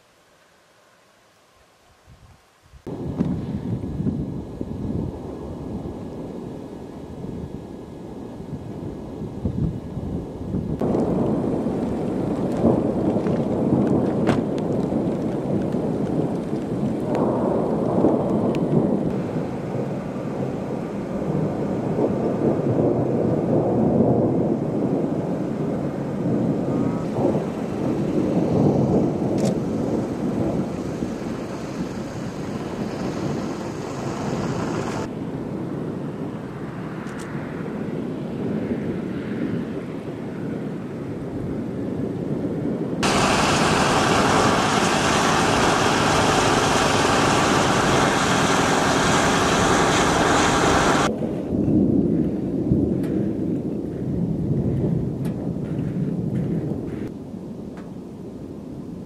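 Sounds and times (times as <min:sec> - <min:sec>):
rain hiss: 0:00.0 - 0:37.6, 0:43.0 - 0:52.0
thunder rumbling: 0:02.8 - 0:36.8, 0:38.4 - 0:58.9.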